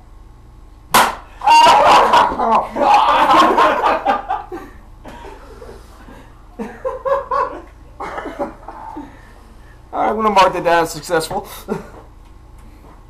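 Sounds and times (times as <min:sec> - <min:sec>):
men laughing: 0:01.4 - 0:09.3, 0:11.6 - 0:12.1.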